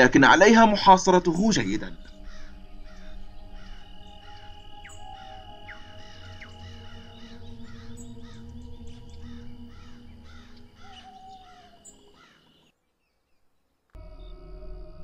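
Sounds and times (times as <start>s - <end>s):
soft music: 0.0s - 12.4s, 14.0s - 15.0s
low hum: 0.3s - 11.8s.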